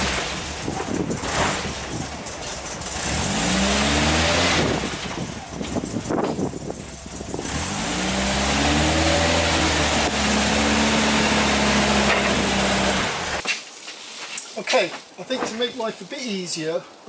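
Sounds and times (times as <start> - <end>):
van engine running: 0.0 - 13.4.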